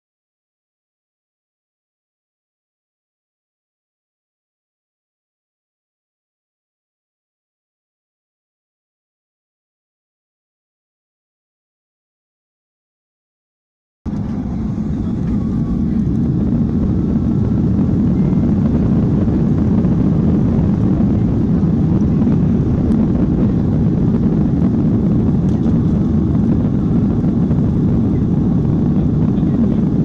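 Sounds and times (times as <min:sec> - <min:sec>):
jet engines roaring in cabin: 0:14.1 - 0:30.0.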